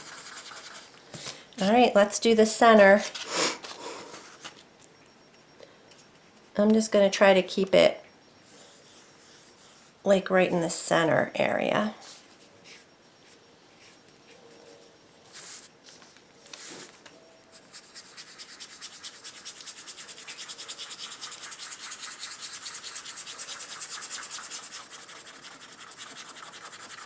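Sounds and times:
paintbrush scrubbing a surface: 0.0s - 0.9s, 8.5s - 10.0s, 17.6s - 27.0s.

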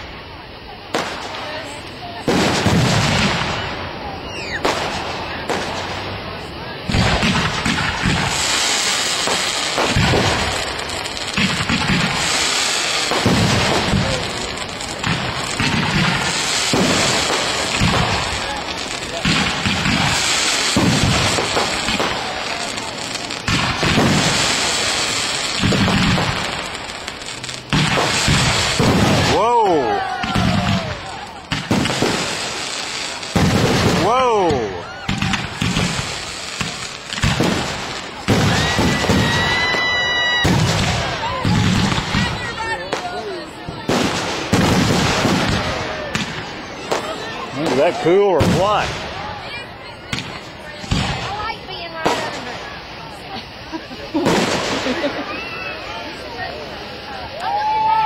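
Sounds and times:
fireworks booming: 0.0s - 58.0s
fireworks crackling: 0.0s - 58.0s
high whistle: 4.2s - 4.6s.

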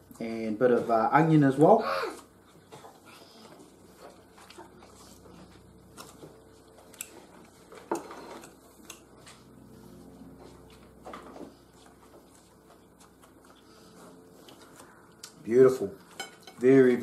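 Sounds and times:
faint steady hum: 0.0s - 17.0s
fork scraping ceramic plate: 16.0s - 16.6s.

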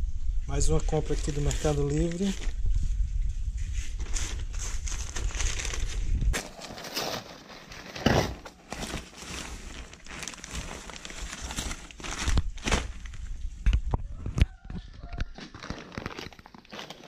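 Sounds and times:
plastic bag crinkling: 1.1s - 2.6s, 4.0s - 13.4s, 15.2s - 17.0s
paper being torn and crumpled: 3.9s - 13.1s.

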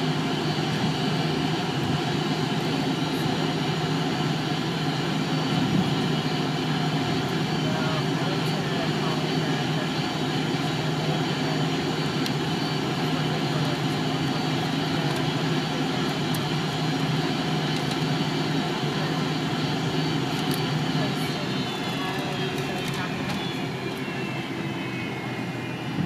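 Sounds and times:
jet engine hum inside cabin: 0.0s - 26.0s.

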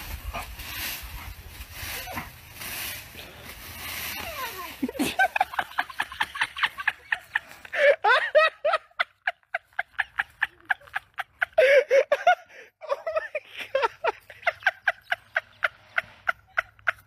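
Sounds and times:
person laughing hard: 4.8s - 17.0s.

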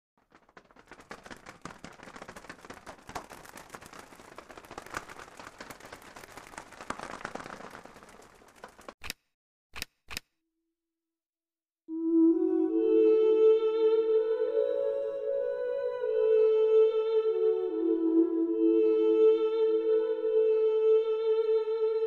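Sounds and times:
dense crackling flutter: 0.0s - 9.0s.

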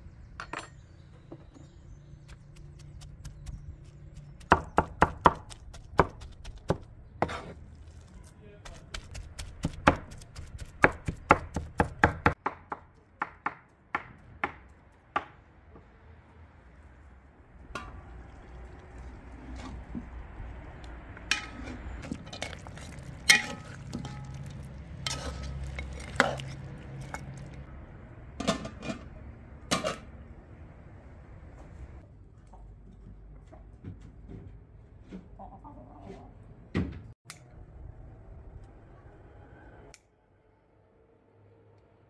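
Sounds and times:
cleaver chopping on wooden board: 8.9s - 14.6s.

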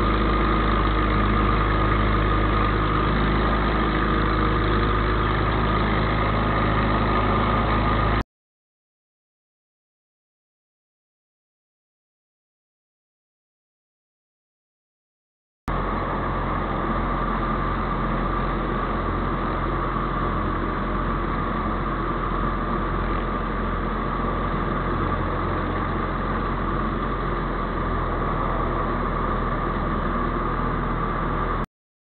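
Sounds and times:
aircraft engine and propeller drone: 0.0s - 8.2s, 15.7s - 31.6s.

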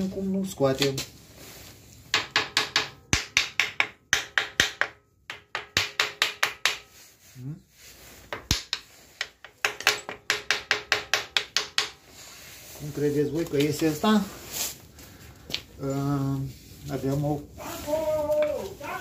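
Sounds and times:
hammer tapping on metal: 2.1s - 6.9s, 8.3s - 12.0s.

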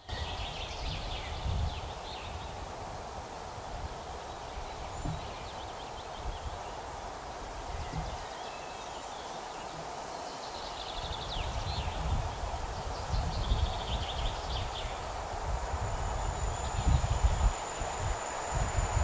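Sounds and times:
wind on microphone: 0.0s - 8.4s, 10.9s - 19.0s
birds chirping: 3.6s - 19.0s
distant electric locomotive whine: 12.0s - 19.0s.

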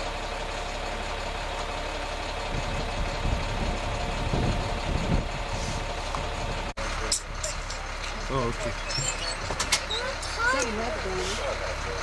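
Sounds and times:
bus engine idling: 0.0s - 12.0s
low thumps and rumbles: 2.4s - 10.7s.

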